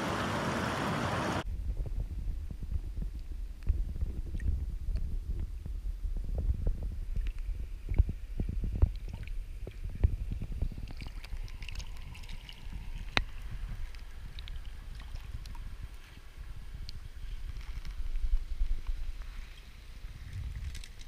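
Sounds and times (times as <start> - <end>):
muffled underwater stream rumble: 1.5 - 20.7
faint water hiss: 7.1 - 21.0.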